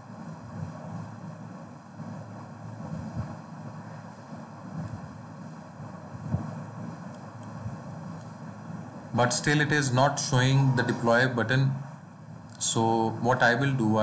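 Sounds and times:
low background rumble: 0:00.0 - 0:14.0
soft low thumps: 0:00.4 - 0:01.0, 0:02.8 - 0:03.7, 0:04.7 - 0:05.2, 0:05.8 - 0:06.8, 0:07.6 - 0:08.0.

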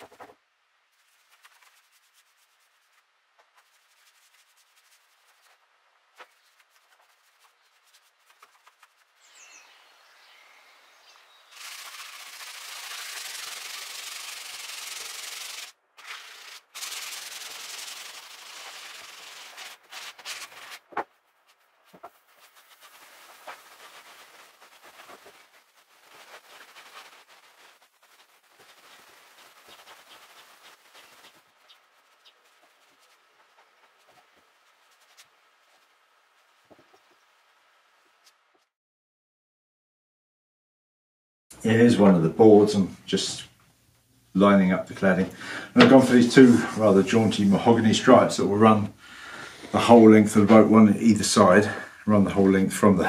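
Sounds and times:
sandpaper rubbing on wooden floor: 0:01.0 - 0:09.7, 0:11.1 - 0:37.2.

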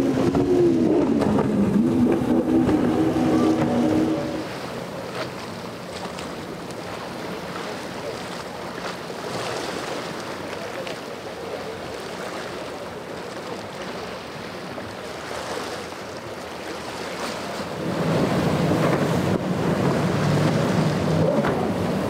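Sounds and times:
wind on microphone: 0:00.0 - 0:04.6
boat outboard engine at speed: 0:00.0 - 0:22.0
water washing: 0:00.0 - 0:22.0.

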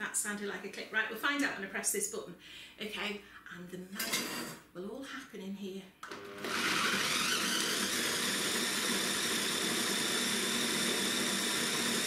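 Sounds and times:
food processor motor running: 0:06.0 - 0:12.0.

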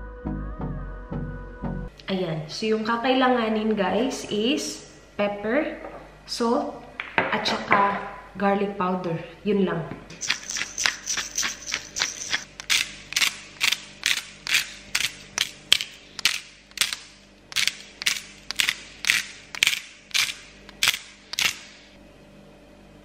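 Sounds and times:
spice grinder crunching clicks: 0:10.2 - 0:21.8.

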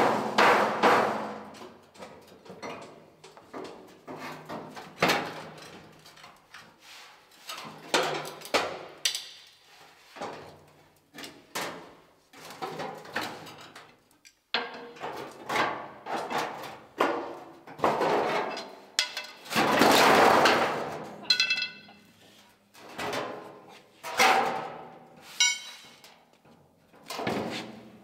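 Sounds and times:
hand tools knocking and scraping metal: 0:14.5 - 0:20.6, 0:21.2 - 0:22.3, 0:22.9 - 0:26.1.

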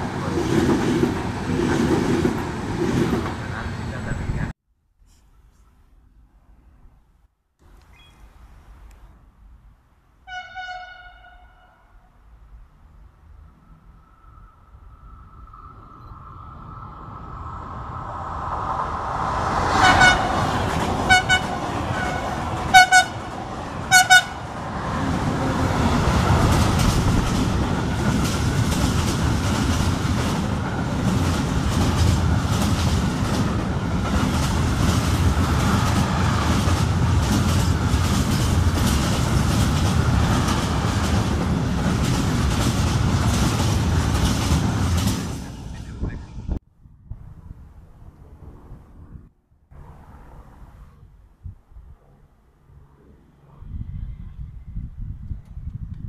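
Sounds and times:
train horn blasts: 0:10.2 - 0:12.1, 0:19.7 - 0:24.6
freight wagons rumbling past: 0:12.5 - 0:46.6
train wheels clattering: 0:26.1 - 0:45.9.

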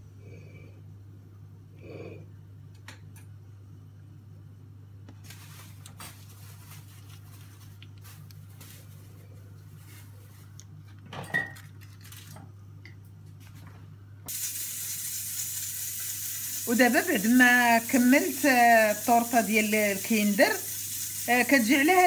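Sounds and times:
steady hiss: 0:14.3 - 0:22.0.

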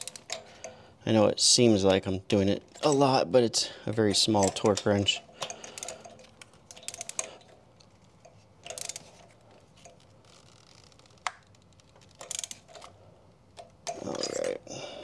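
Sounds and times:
torque wrench ratcheting clicks: 0:00.0 - 0:00.8, 0:04.0 - 0:07.5, 0:08.2 - 0:12.9.

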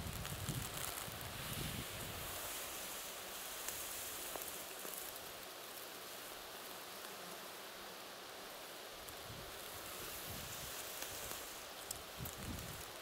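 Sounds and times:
grass rustling: 0:00.0 - 0:13.0
faint ticks: 0:10.9 - 0:13.0.

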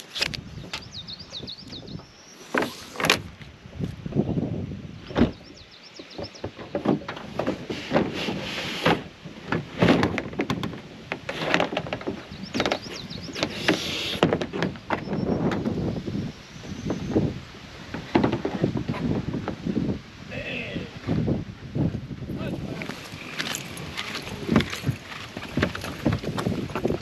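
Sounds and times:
kayak hulls knocking and scraping: 0:00.0 - 0:04.4, 0:05.0 - 0:20.0, 0:20.9 - 0:27.0
rope and straps rustling: 0:02.4 - 0:04.0, 0:06.6 - 0:14.9, 0:22.5 - 0:27.0.

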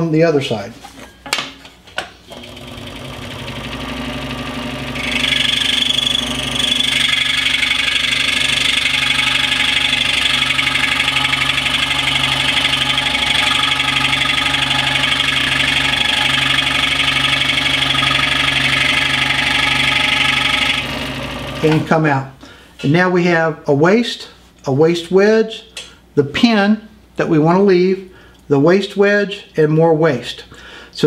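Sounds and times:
scroll saw buzzing: 0:02.3 - 0:21.9
saw blade rasping through wood: 0:06.7 - 0:21.0.

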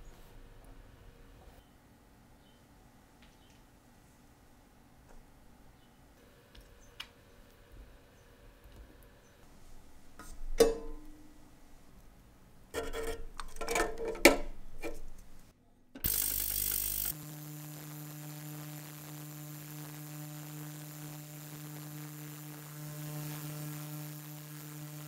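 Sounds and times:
ultrasonic cleaner humming: 0:16.0 - 0:25.0.

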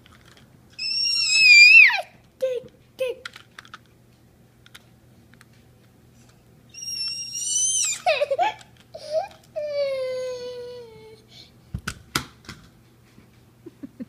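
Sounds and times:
child high-pitched squeal: 0:00.8 - 0:02.2, 0:06.8 - 0:08.3
plastic toy clicks: 0:03.2 - 0:03.9
child fussing cries: 0:06.8 - 0:11.3.

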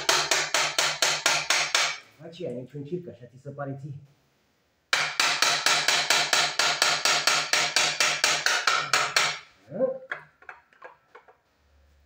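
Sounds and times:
rapid metallic knocks: 0:04.9 - 0:09.4.

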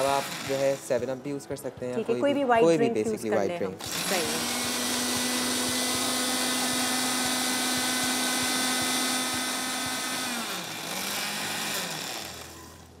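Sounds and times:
blender motor running: 0:00.0 - 0:01.1, 0:03.8 - 0:13.0.

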